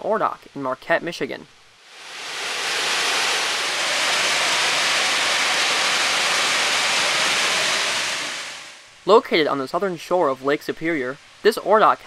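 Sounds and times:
ore pellets pouring down chute: 1.9 - 8.8.

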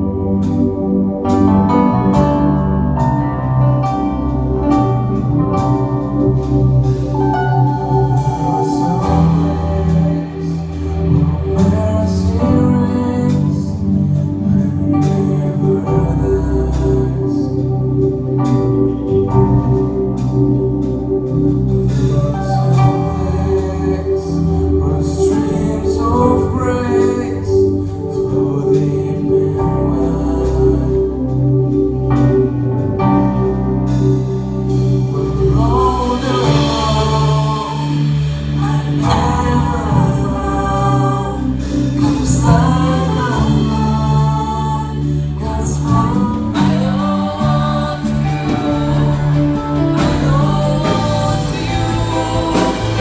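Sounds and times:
worship band playing slow song: 0.0 - 53.0
women singing: 35.6 - 53.0.

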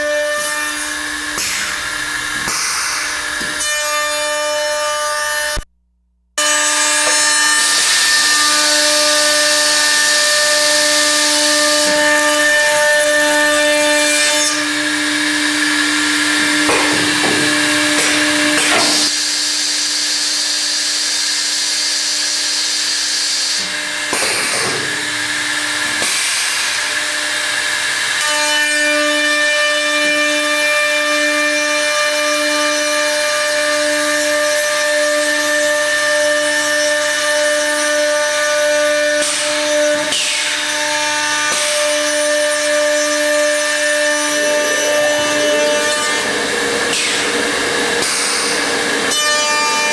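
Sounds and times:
router cutting wood: 0.0 - 5.7, 6.4 - 49.9
router motors whining: 0.0 - 5.7, 6.4 - 49.9.

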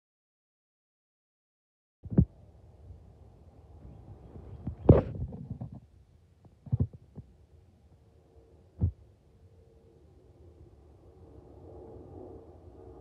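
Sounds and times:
faint steady hum: 2.1 - 13.0
muffled thumps on microphone: 4.4 - 7.3.

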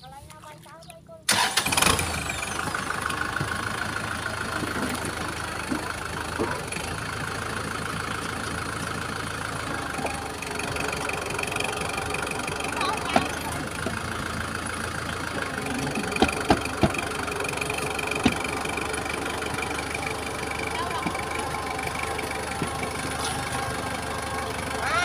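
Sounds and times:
tractor diesel engine running: 0.0 - 25.0
wheels churning mud: 0.0 - 25.0
sharp knocks: 16.2 - 17.0.

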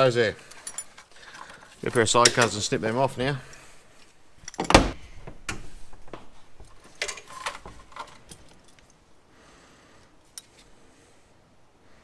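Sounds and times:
metal fittings being handled: 0.4 - 2.8, 6.7 - 9.0.

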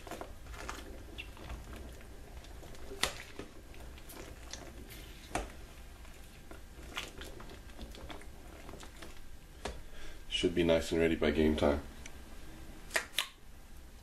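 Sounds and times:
brine sloshing: 0.0 - 10.3.

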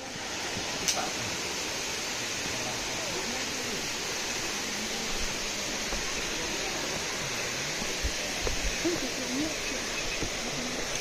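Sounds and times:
stream water flowing: 0.0 - 11.0
soft footfalls on path: 7.8 - 9.1, 10.0 - 11.0.

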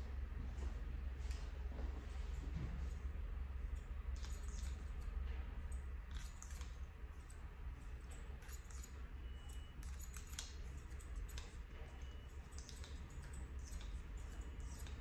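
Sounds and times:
low steady hum: 0.0 - 15.0
scissors snipping hair: 3.8 - 15.0.

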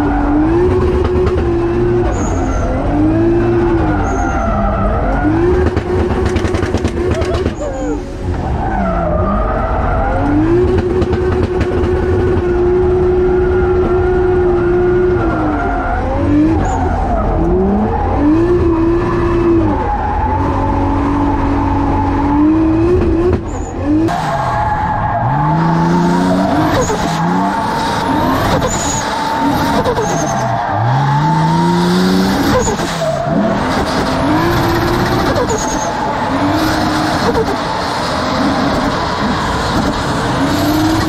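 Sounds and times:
tyres skidding and squealing: 0.0 - 41.0
car engine revving hard: 10.1 - 41.0.

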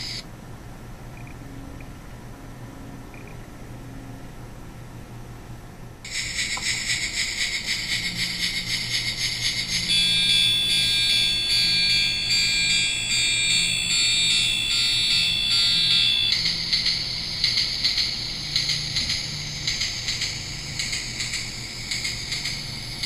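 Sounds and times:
tinny toy train chugging: 6.1 - 23.0
high electronic tune: 9.6 - 17.5.

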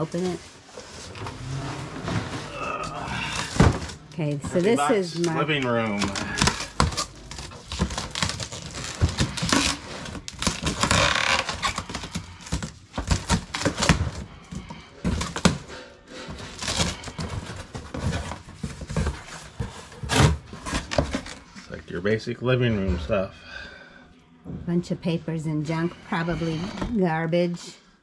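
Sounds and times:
hands rummaging in cardboard box: 0.0 - 21.5.

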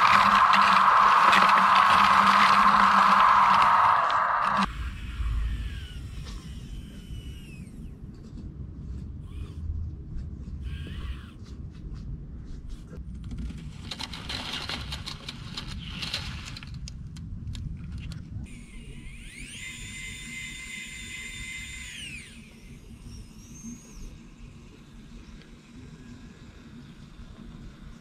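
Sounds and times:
small electric motor whining: 0.0 - 8.2, 9.2 - 9.6, 10.6 - 11.4, 18.4 - 28.0
low outdoor rumble: 0.0 - 10.6
rapid clicking and rattling: 13.0 - 18.2.

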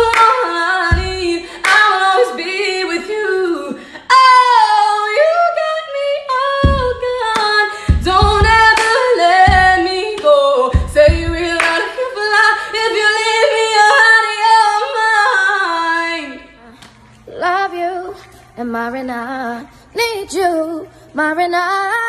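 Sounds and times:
woman singing a cappella: 0.0 - 22.0
low thumps: 7.9 - 8.8, 10.8 - 11.6.

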